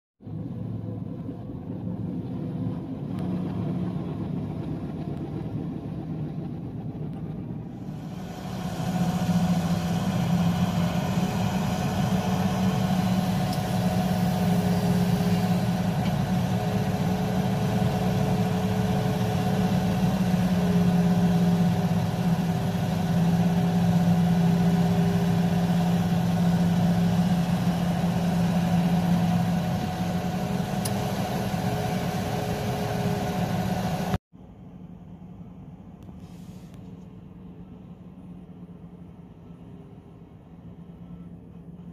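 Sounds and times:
bulldozer diesel engine: 0.2s - 35.9s, 37.2s - 41.9s
excavator digging: 7.6s - 34.2s.

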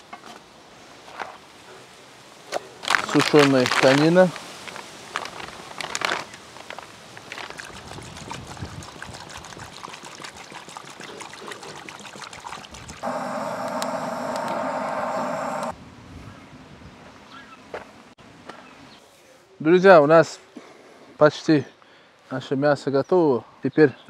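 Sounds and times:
water bubbling in a cooking pot: 7.5s - 15.7s
loud steady sound: 13.0s - 15.7s.

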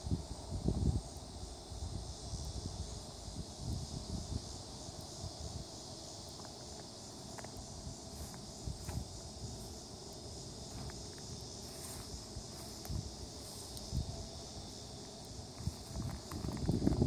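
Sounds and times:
high-pitched insect drone: 0.0s - 17.0s
soft footsteps thumping: 8.2s - 9.8s.

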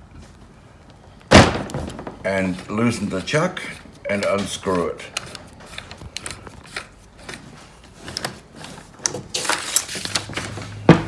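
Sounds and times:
metal parts clicking and scraping: 3.8s - 10.7s.

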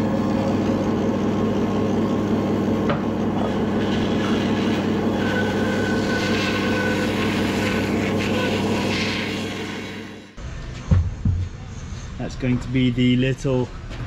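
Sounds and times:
thin high whine: 0.0s - 10.7s
electric planer cutting wood: 3.4s - 10.2s.

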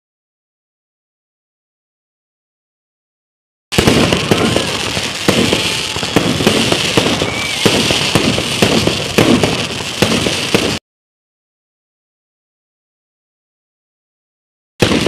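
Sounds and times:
fireworks bangs: 3.7s - 10.8s, 14.8s - 15.0s
fireworks crackling: 3.7s - 10.8s, 14.8s - 15.0s.

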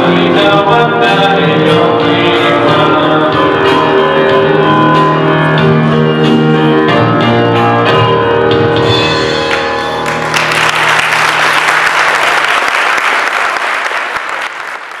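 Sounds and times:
music playing: 0.0s - 12.6s
crowd applauding: 9.5s - 15.0s.

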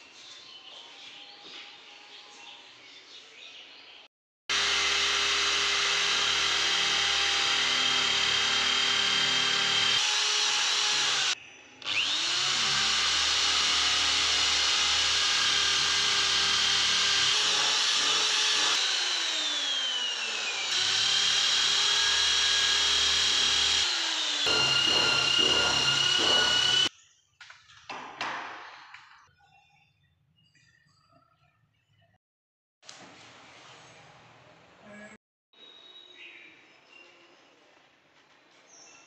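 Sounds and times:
electric drill boring into wood: 4.5s - 26.9s.

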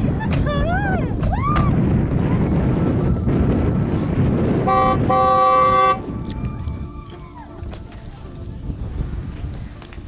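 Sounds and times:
steady low rumble: 0.0s - 10.0s
car horn beeping: 4.7s - 6.0s.

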